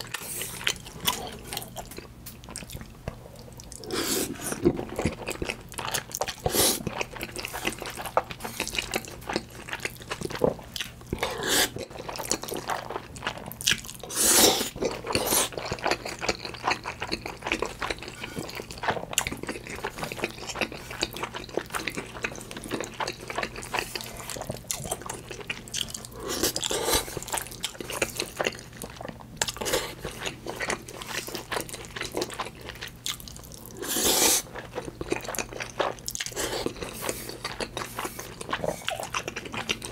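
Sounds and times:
wet chewing: 0.0s - 39.9s
slurping noodles: 3.8s - 4.7s, 11.3s - 11.8s, 14.1s - 15.5s.

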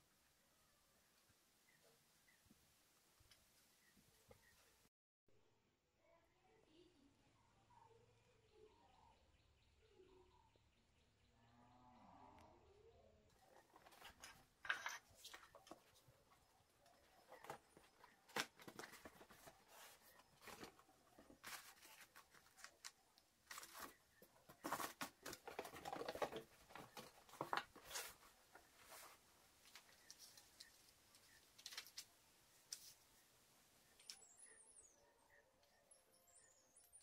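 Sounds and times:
paper manual rustling: 16.9s - 32.1s
cardboard box rustling: 17.0s - 22.8s, 23.5s - 29.2s.

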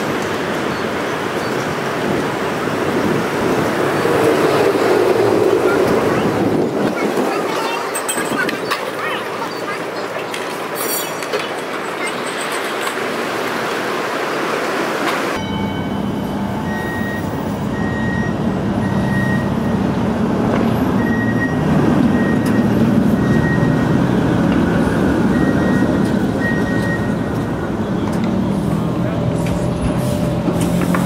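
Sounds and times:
streetcar rumble and motor hum: 0.0s - 31.0s
high beeping tone: 15.4s - 19.9s.

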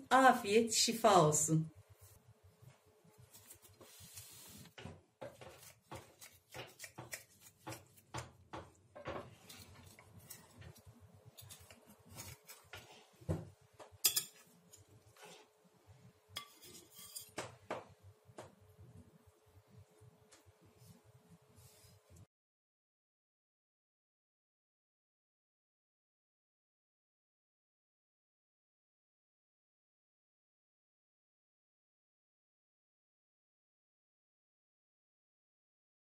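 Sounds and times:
knife scraping on glass plate: 9.5s - 13.0s, 14.1s - 15.5s, 16.4s - 17.4s.

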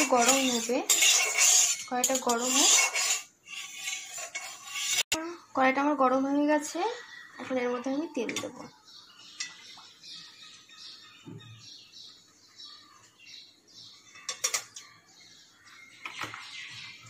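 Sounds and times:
faint high chirping: 7.0s - 17.0s.

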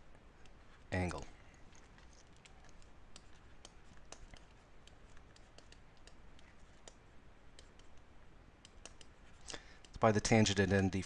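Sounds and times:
stylus tapping on tablet screen: 2.7s - 9.2s.

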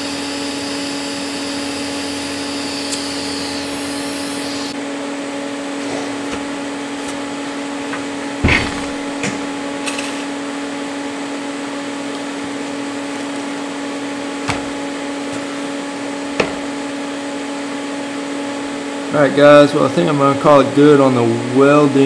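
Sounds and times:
machine hum: 0.0s - 19.6s
sharp knock: 8.4s - 9.1s.

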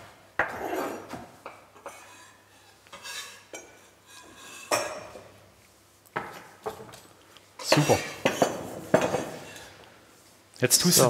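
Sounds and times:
utensils clinking on metal bowls: 6.8s - 9.7s.

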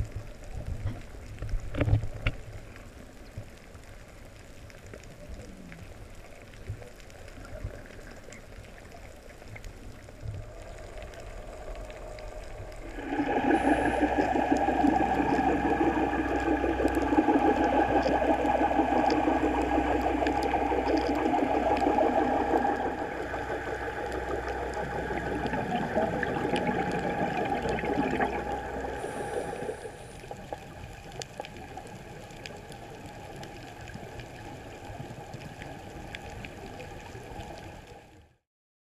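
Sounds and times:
faint underwater crackling clicks: 0.0s - 38.1s
low hum: 9.8s - 31.2s.

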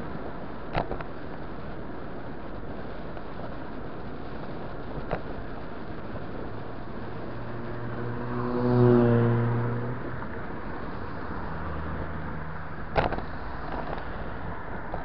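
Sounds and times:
faint engine hum: 0.0s - 15.0s
wind and road rush: 0.0s - 15.0s
vehicle passing close: 7.0s - 14.0s.

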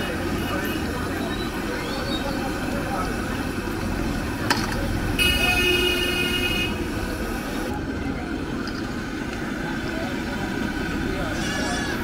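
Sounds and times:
street noise: 0.0s - 12.0s
vehicle horn: 5.2s - 6.9s.

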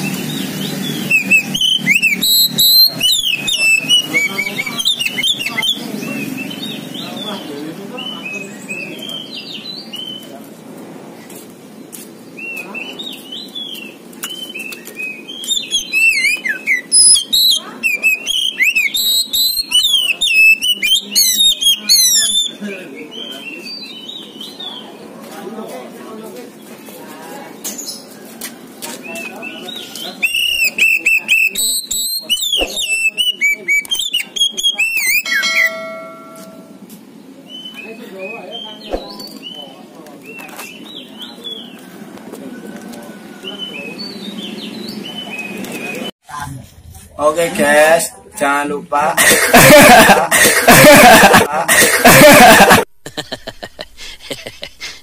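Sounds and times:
bird singing whistled notes: 0.0s - 10.3s, 12.4s - 24.8s, 29.2s - 36.1s, 37.5s - 41.8s.

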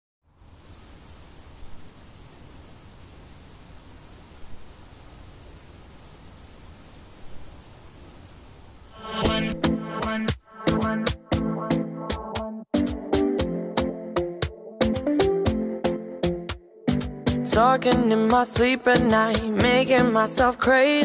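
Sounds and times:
insects chirping: 0.2s - 10.7s
music: 9.0s - 21.0s.

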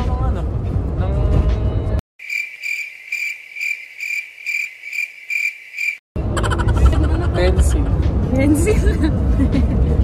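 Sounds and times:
cricket chirping: 2.2s - 6.0s.

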